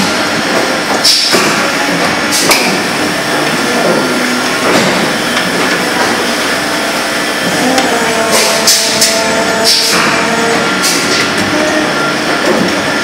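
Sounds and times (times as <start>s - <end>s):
machine running: 0.0s - 13.0s.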